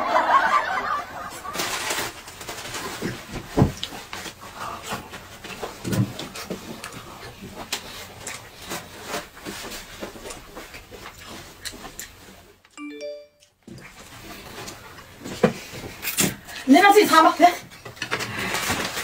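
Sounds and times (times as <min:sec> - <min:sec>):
chewing slurping and smacking: 0:06.4 - 0:08.9, 0:10.2 - 0:12.4.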